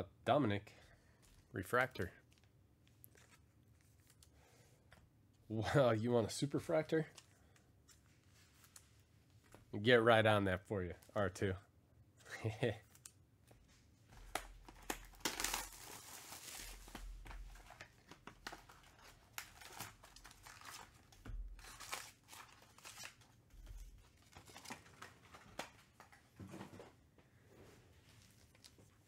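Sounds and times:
wrappers crinkling: 14.2 - 25.8.

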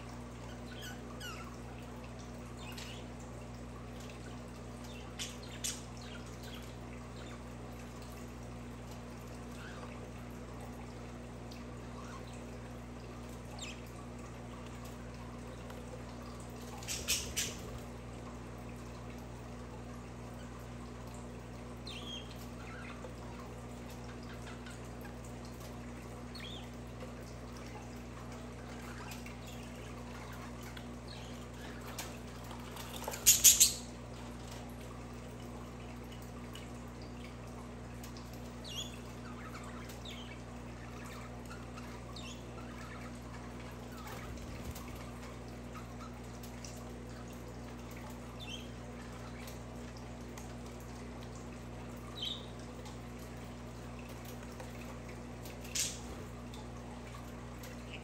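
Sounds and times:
budgerigars chirping: 16.8 - 17.6, 33.0 - 33.9.

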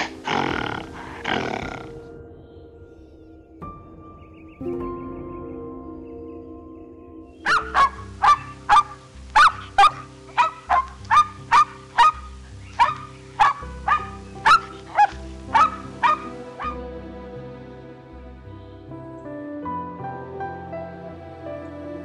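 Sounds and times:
soft background music: 0.0 - 22.0
dog barking: 7.5 - 16.8.

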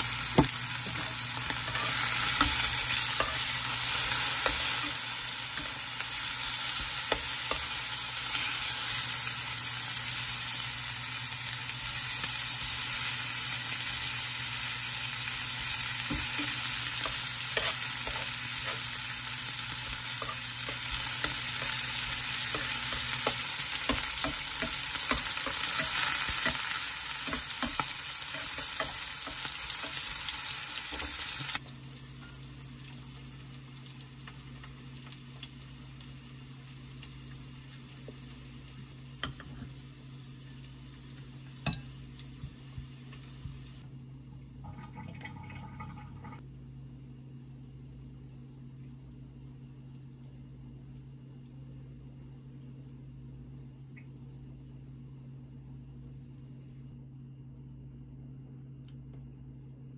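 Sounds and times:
meat sizzling in a frying pan: 0.0 - 43.8.

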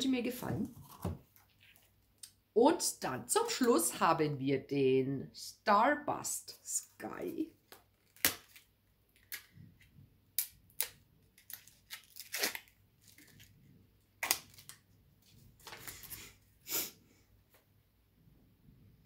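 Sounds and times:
plastic packaging clicks and crackles: 10.4 - 13.5, 14.2 - 14.8
plastic packaging rustling: 11.3 - 16.4.

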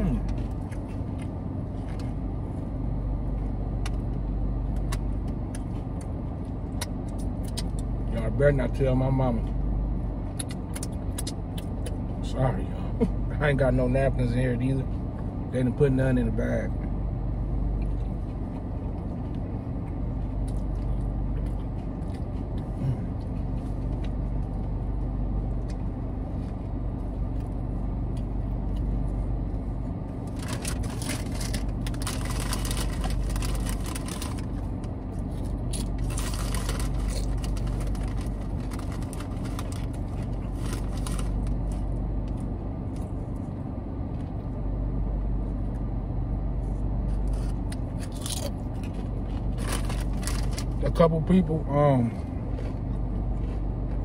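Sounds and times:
car idling hum: 0.0 - 54.0
plastic chip bag crinkling: 30.3 - 34.6, 35.4 - 41.6, 49.5 - 50.8.

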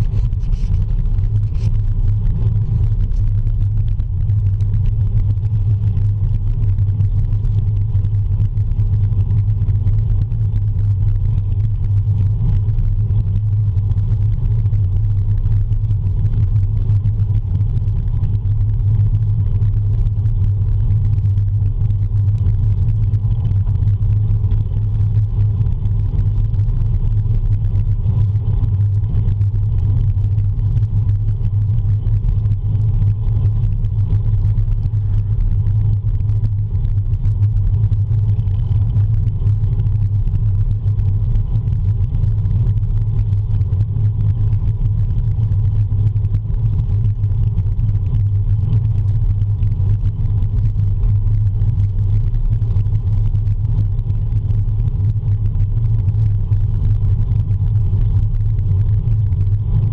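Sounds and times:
wind buffeting camera: 0.0 - 19.6
road vibration rumble: 0.0 - 59.9.

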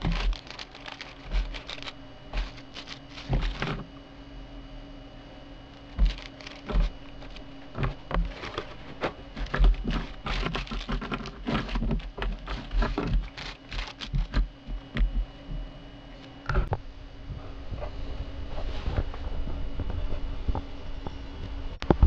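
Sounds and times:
plastic bags crinkling: 0.0 - 3.9, 5.7 - 15.2.

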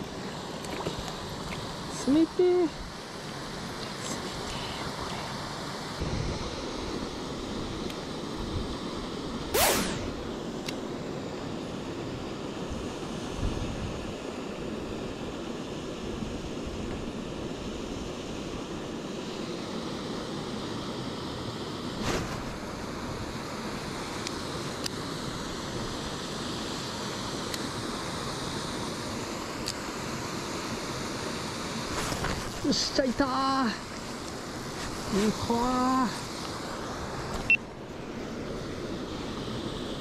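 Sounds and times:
water rushing over weir: 0.0 - 12.4.

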